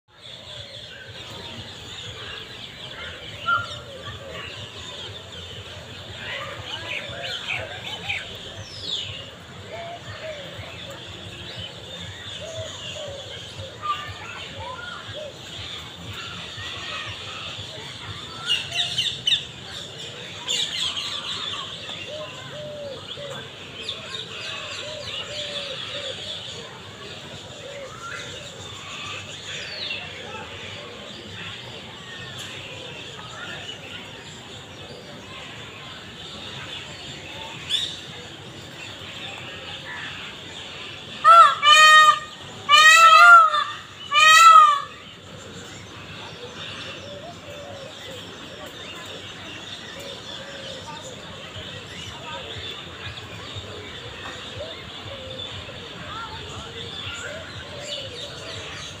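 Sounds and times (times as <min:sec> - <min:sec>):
peacock calling: 0:41.1 - 0:45.6.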